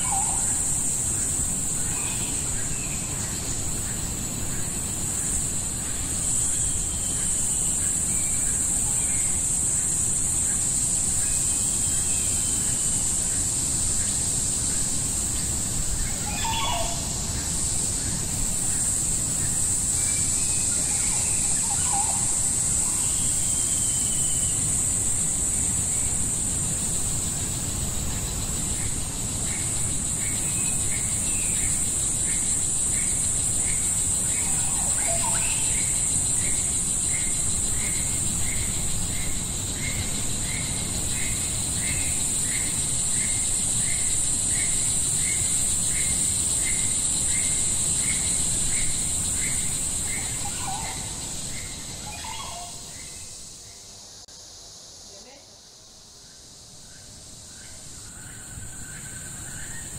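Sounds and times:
high-pitched insect drone: 0.0s - 59.9s
bird calls: 16.0s - 18.3s, 19.4s - 24.7s, 32.4s - 44.0s, 44.6s - 53.9s.

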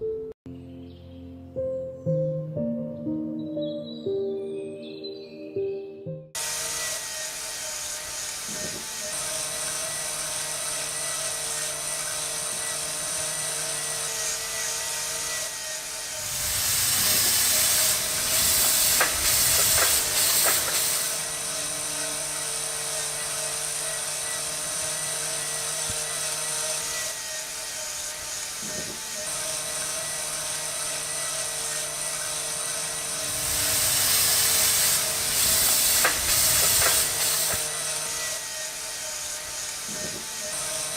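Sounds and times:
small electric motors whirring: 6.4s - 40.9s
granules pouring hiss: 16.2s - 21.3s, 33.2s - 37.7s.

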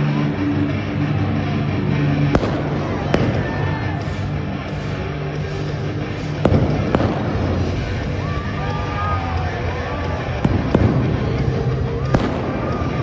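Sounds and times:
loud music with steady bass: 0.0s - 13.0s
pyrotechnics bangs: 2.3s - 4.4s, 6.1s - 8.2s, 10.3s - 13.0s.

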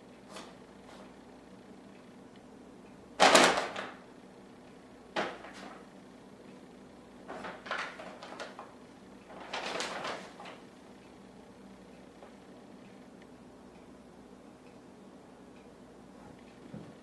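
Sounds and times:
plastic bag rustling: 9.3s - 10.6s.

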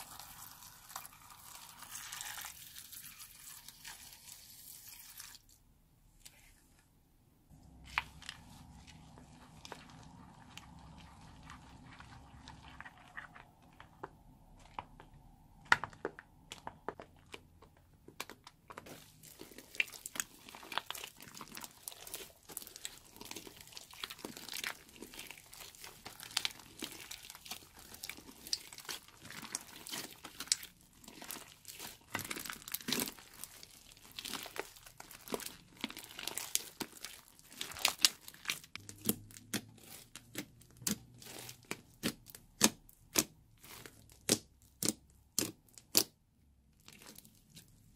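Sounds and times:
slime squishing and crackling: 0.0s - 5.4s, 7.6s - 47.9s.

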